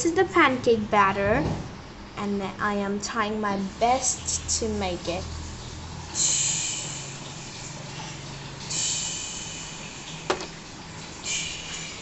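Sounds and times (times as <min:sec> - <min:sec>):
soft hissing bursts: 0:06.1 - 0:12.0.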